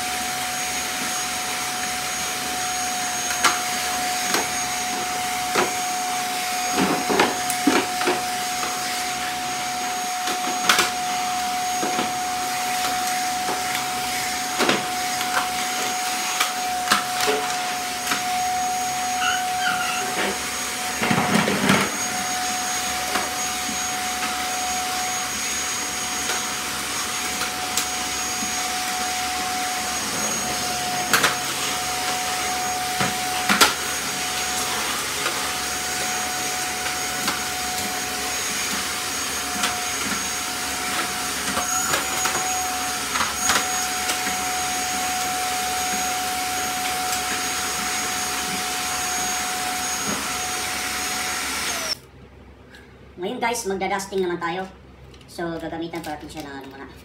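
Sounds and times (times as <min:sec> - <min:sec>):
vacuum cleaner whining: 0:00.0 - 0:52.1.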